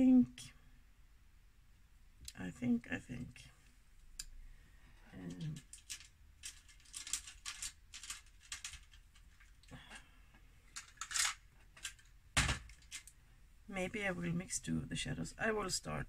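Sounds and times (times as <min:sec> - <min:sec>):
small hard objects clicking: 0:05.3 - 0:09.7.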